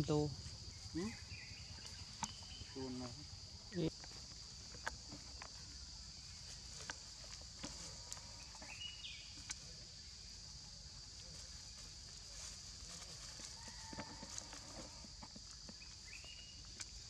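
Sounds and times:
insect drone: 0:00.0 - 0:17.0
dry leaves crackling and rustling: 0:11.2 - 0:14.9.

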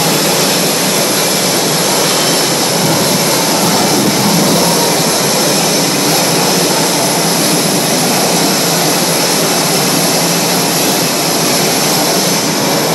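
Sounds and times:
jet engines running: 0:00.0 - 0:12.9
thin high whine: 0:00.0 - 0:12.9.

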